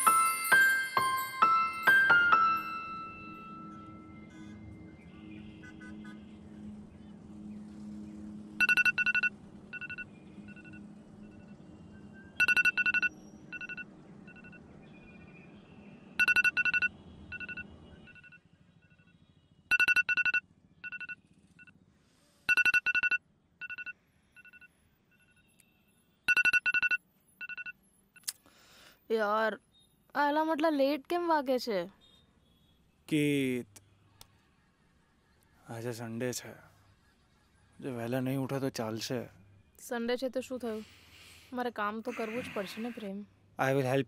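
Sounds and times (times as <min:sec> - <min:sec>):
soft background music: 0:00.0 - 0:14.6
phone alarm ringing: 0:08.6 - 0:11.6, 0:12.4 - 0:14.6, 0:16.2 - 0:21.7, 0:22.5 - 0:25.5, 0:26.3 - 0:27.8.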